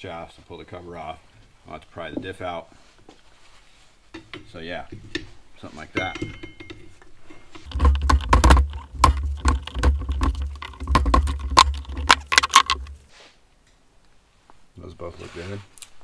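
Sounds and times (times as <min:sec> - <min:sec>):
pry bar metal clanks and clicks: 0:06.0 - 0:07.0
heavy housing rumbling on bench: 0:07.6 - 0:13.0.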